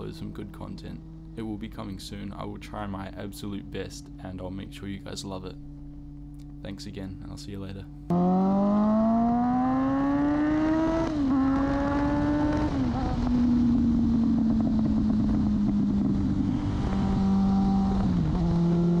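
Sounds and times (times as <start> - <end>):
motorcycle engine revving: 0.0 - 4.7, 8.0 - 19.0
wind rushing past microphone: 10.8 - 19.0.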